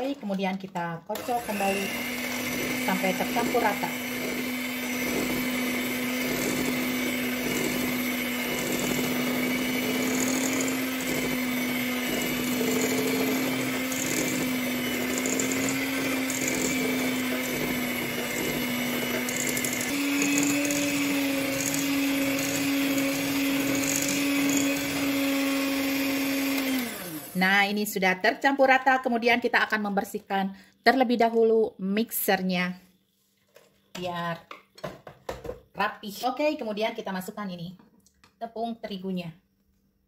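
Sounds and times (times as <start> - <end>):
electric mixer whipping dough: 1.2 - 27.4.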